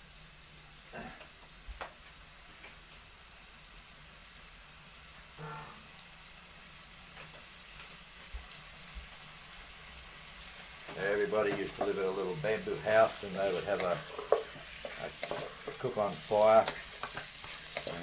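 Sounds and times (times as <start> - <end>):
meat sizzling in hot oil: 0.0 - 18.0.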